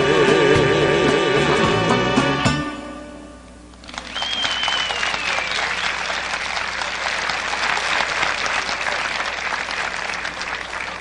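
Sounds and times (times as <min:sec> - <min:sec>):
audience applauding: 0:03.8 - 0:11.0
high whistle gliding downward: 0:04.1 - 0:06.0.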